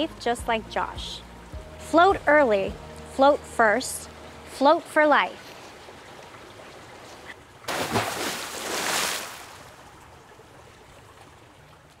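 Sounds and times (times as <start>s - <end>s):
splashing rushing water: 5.5s - 12.0s.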